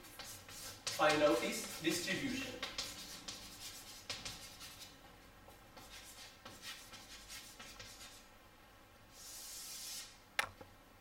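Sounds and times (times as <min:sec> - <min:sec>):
chalk scratching on chalkboard: 0:00.0 - 0:05.0, 0:05.8 - 0:08.3, 0:09.1 - 0:10.2.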